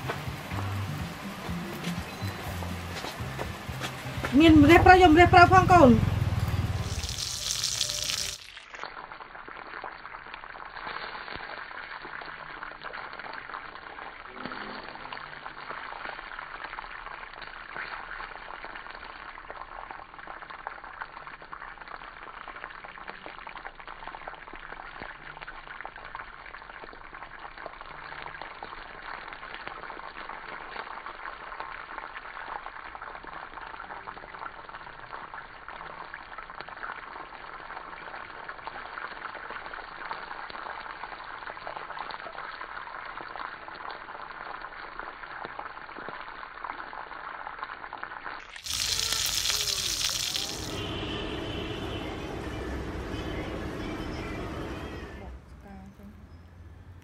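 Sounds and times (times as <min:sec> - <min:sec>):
fish sizzling in hot oil: 0:06.2 - 0:52.0.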